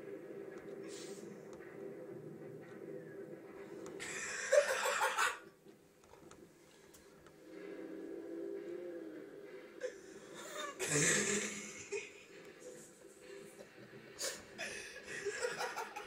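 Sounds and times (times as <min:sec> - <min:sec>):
stifled laughter: 0:04.0 - 0:05.5, 0:09.8 - 0:12.3, 0:14.2 - 0:16.0.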